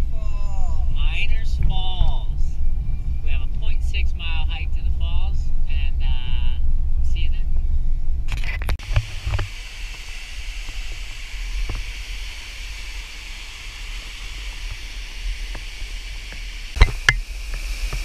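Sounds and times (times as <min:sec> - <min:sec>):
waterfall rushing hiss: 0:08.8 - 0:18.0.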